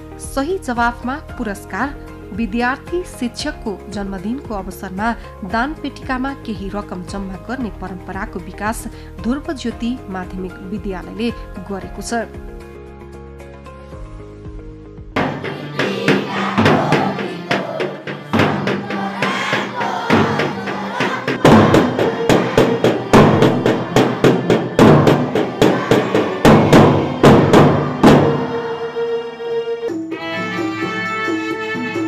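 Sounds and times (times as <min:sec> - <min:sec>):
marching drums beating: 0:15.2 - 0:28.7.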